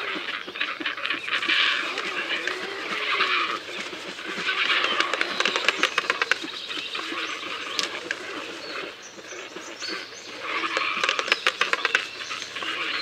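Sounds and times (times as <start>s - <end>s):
rapid clicks and ticks: 4.6s - 6.5s.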